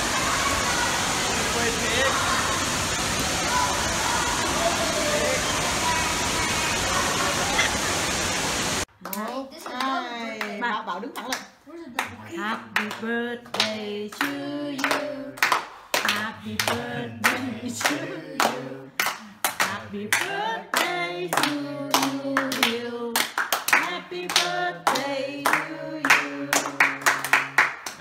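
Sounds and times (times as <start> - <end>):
group of people singing: 12.1 - 27.6
rhythmic clapping: 12.8 - 28.0.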